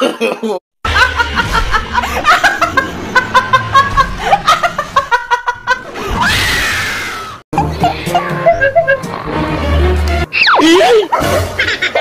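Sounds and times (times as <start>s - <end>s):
woman laughing: 7.6s - 9.2s.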